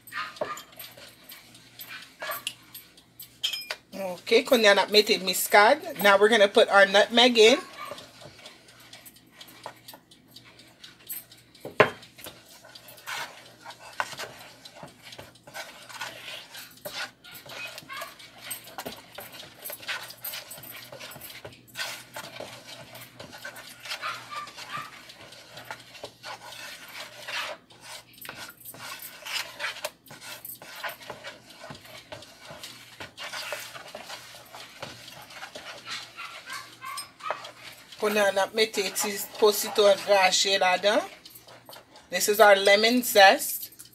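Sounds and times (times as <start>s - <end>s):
spoon scraping plastic bowl: 12.0s - 43.2s.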